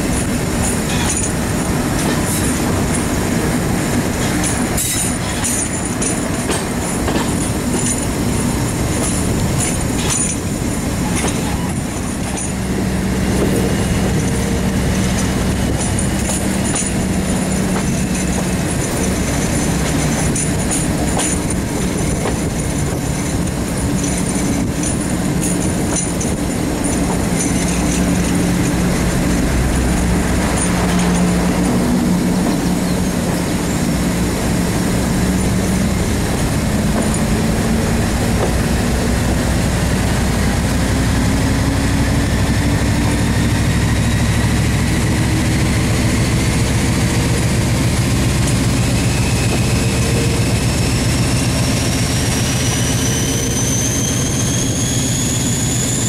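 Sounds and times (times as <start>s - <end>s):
wheel clicks over rail joints: 0.0s - 40.9s
rushing air: 0.0s - 53.0s
diesel locomotive engine: 0.0s - 56.0s.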